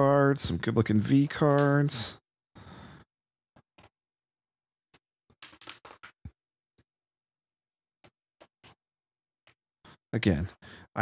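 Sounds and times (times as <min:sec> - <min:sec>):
page turning rustle: 0:05.3 - 0:06.3.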